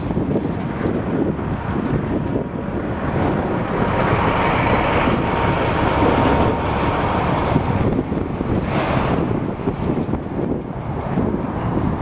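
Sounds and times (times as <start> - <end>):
excavator engine and hydraulics: 0.0 - 12.0.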